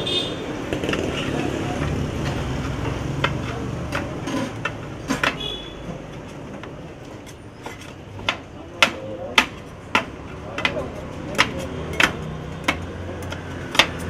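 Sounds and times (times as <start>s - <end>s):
metal spatula clanking on griddle: 3.2s - 6.4s.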